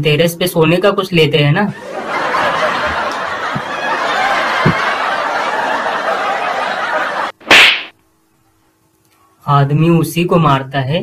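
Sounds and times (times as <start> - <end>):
laugh track: 1.7 - 7.4.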